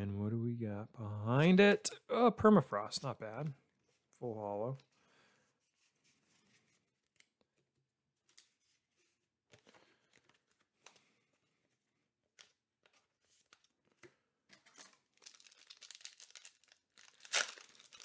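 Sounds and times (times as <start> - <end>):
foil wrapper crinkling and tearing: 14.7 - 18.0.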